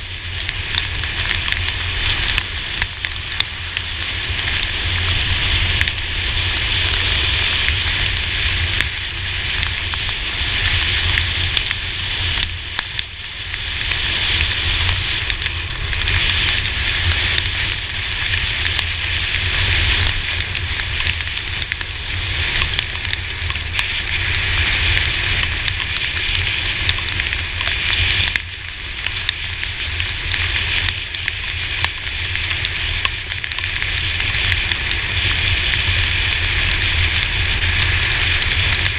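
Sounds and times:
heavy rain and tyre spray hiss: 0:00.0 - 0:38.9
low wind rumble: 0:00.0 - 0:38.9.

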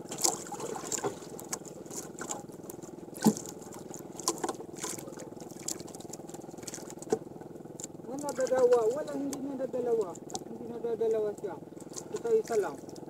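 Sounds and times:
engine hum: 0:00.0 - 0:13.0
water lapping against canoe: 0:00.0 - 0:13.0
knocks on wooden hull: 0:03.1 - 0:05.0.

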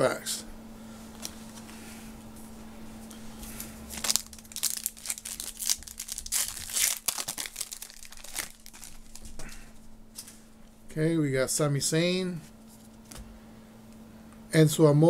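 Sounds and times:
foil wrapper crinkling and tearing: 0:03.9 - 0:09.6.

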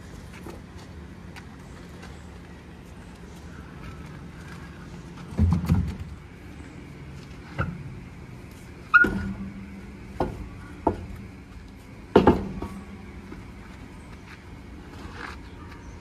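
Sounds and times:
metallic knocks and clanks: 0:12.1 - 0:13.0.

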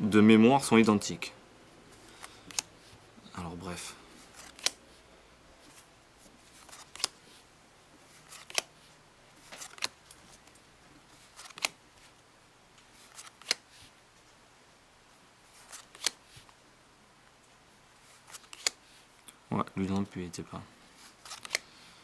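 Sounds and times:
card sliding on card: 0:01.9 - 0:03.0, 0:04.2 - 0:05.0, 0:08.2 - 0:09.9, 0:11.2 - 0:11.8, 0:13.0 - 0:13.9, 0:15.6 - 0:16.6, 0:18.1 - 0:19.0, 0:21.0 - 0:21.8
playing cards snapping onto a pile: 0:04.4 - 0:04.8, 0:11.4 - 0:11.8, 0:13.1 - 0:13.6, 0:15.7 - 0:16.2, 0:18.3 - 0:18.8, 0:21.2 - 0:21.7.

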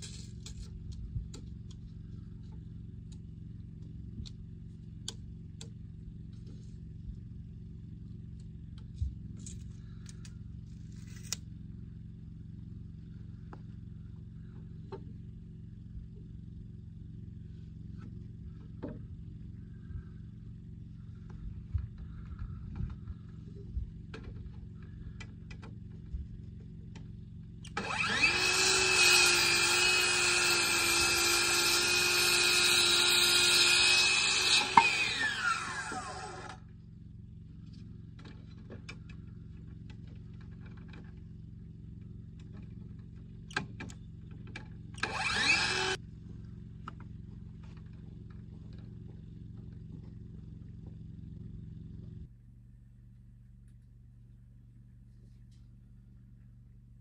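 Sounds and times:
circular saw cutting wood: 0:27.6 - 0:36.6, 0:45.0 - 0:46.0.

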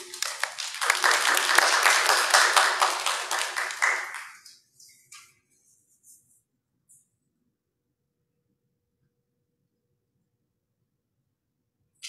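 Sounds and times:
congregation applauding: 0:00.0 - 0:04.6.

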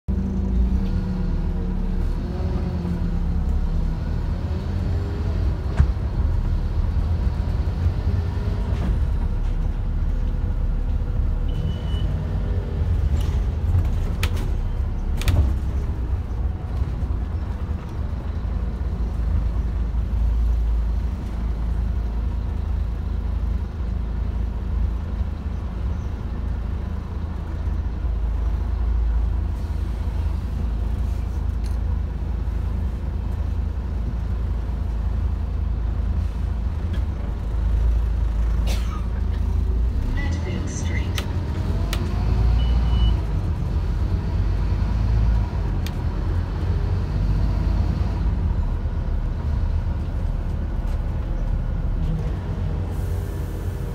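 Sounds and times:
bus engine and road rumble: 0:00.1 - 0:53.9.

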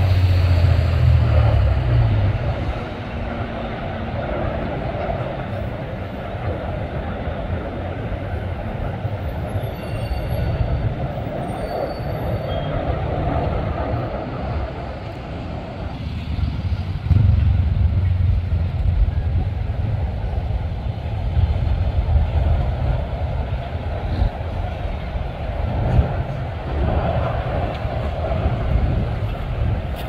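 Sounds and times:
road traffic rumble: 0:00.0 - 0:30.0.

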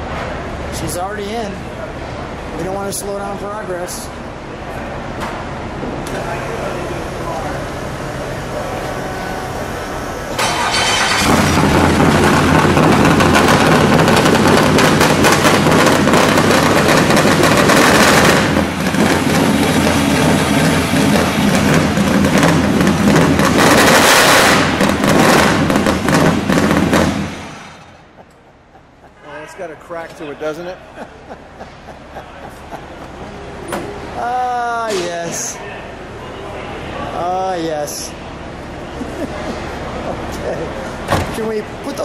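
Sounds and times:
race car engine running: 0:06.2 - 0:29.0.

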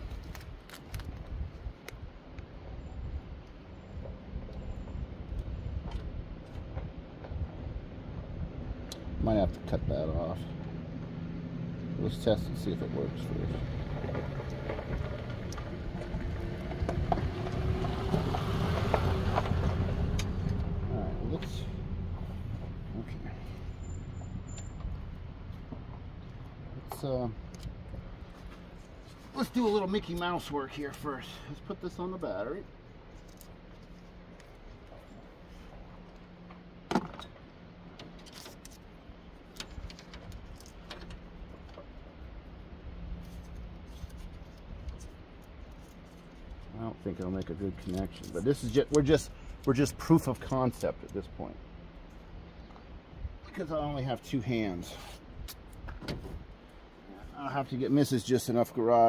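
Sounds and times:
wire and tape handling clicks: 0:00.0 - 0:02.5, 0:26.2 - 0:28.6.

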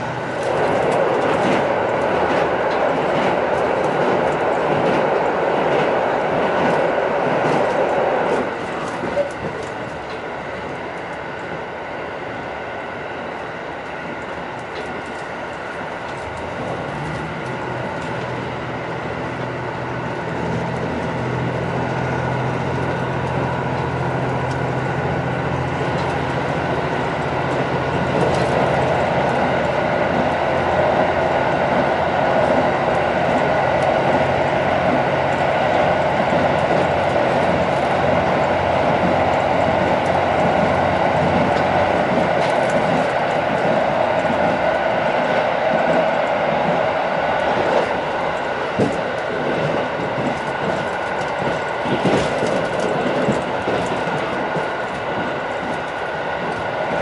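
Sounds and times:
wheel-on-rail rumble: 0:00.0 - 0:57.0
diesel engine hum: 0:15.9 - 0:54.4.

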